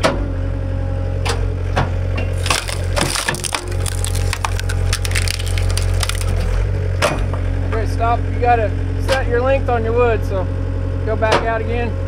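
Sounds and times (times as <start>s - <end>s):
wood cracking and splintering: 2.3s - 6.7s.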